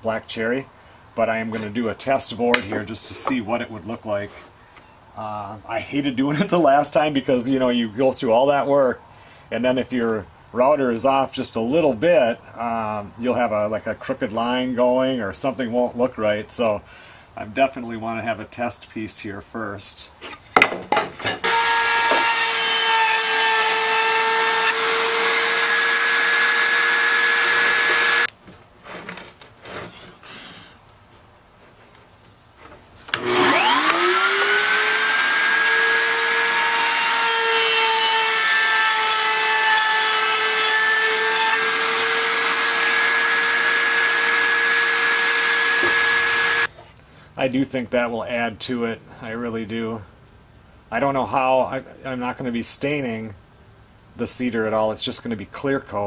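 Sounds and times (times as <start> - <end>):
router whining: 21.2 - 28.3, 33.1 - 46.7.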